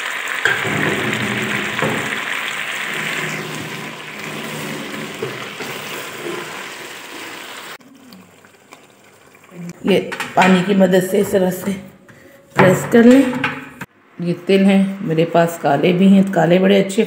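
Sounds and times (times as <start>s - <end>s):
food sizzling in hot oil: 0.0s - 10.0s
wooden spoon stirring: 0.5s - 10.0s.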